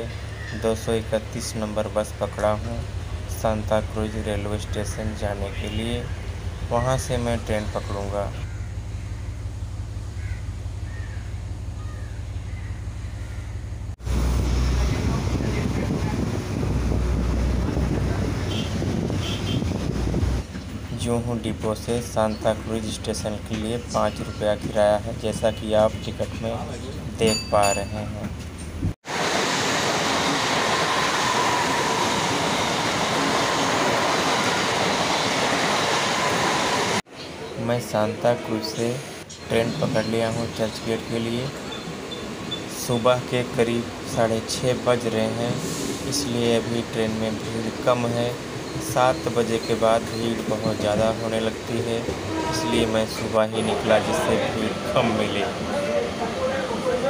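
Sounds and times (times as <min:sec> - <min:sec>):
rattling carriages: 0:00.0 - 0:29.0, 0:39.1 - 0:57.0
bus engine hum: 0:00.0 - 0:57.0
low rumble: 0:06.1 - 0:20.9
wind buffeting microphone: 0:14.2 - 0:21.0
train wheels rushing on rails: 0:28.2 - 0:37.0, 0:40.7 - 0:57.0.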